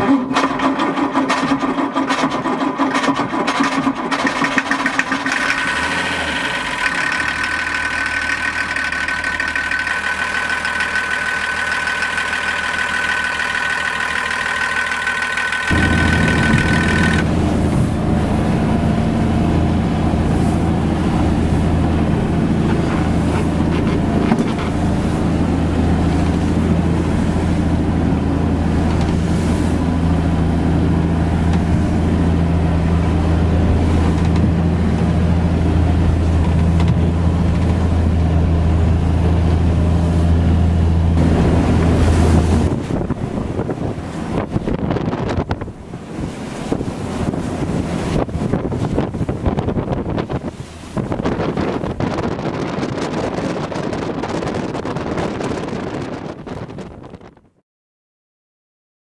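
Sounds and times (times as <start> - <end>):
low diesel engine drone: 0.0 - 57.1
diesel engine ticking clatter: 0.4 - 17.4
diesel engine idling: 5.4 - 22.8
high steady tone: 9.6 - 18.0.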